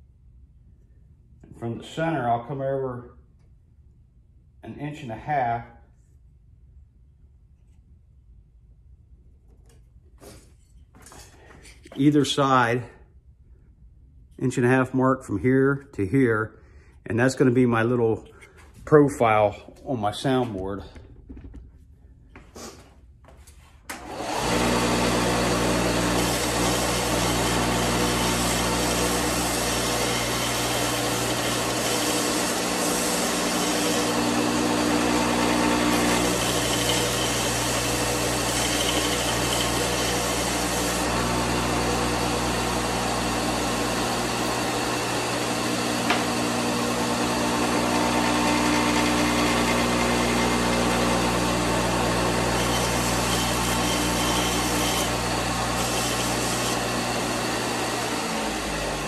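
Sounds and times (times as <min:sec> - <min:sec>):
belt sander sanding wood: 0:24.2 - 0:59.0.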